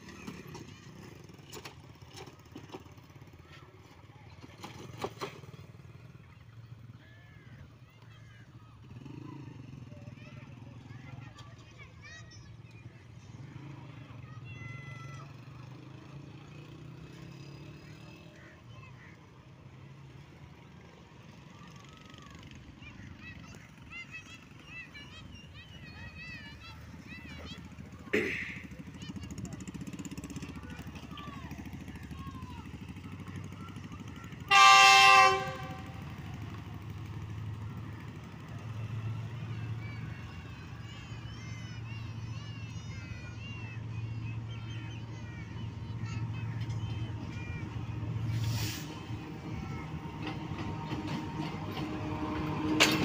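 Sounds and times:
motorcycle engines passing by: 0:00.0 - 0:53.0
locomotive horn: 0:34.3 - 0:36.4.

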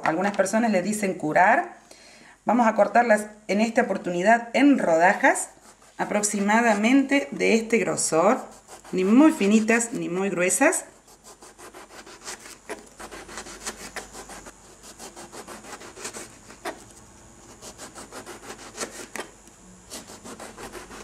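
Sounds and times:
knife sawing through eggplant: 0:05.2 - 0:07.0, 0:08.1 - 0:19.3, 0:19.9 - 0:21.0.

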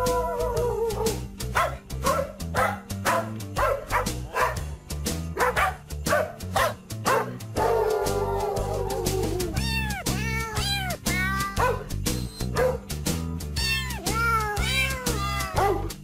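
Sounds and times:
dog barks tuned to a melody: 0:00.2 - 0:04.7, 0:05.3 - 0:08.8, 0:11.5 - 0:12.9, 0:15.0 - 0:16.0.

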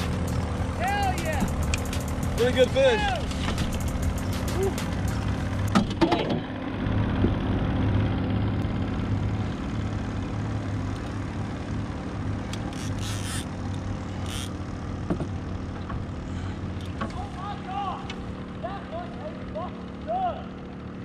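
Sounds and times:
low motor drone: 0:00.0 - 0:21.0.

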